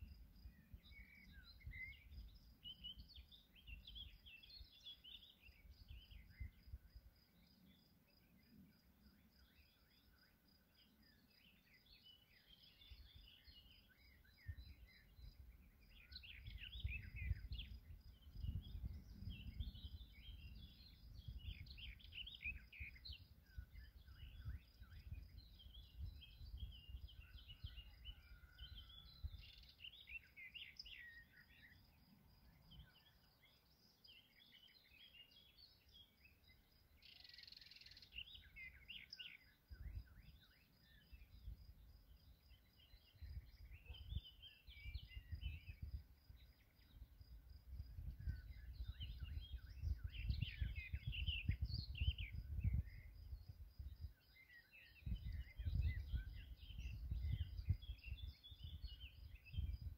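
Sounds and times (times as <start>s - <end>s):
birds chirping and singing: 0.0s - 6.8s, 9.3s - 59.9s.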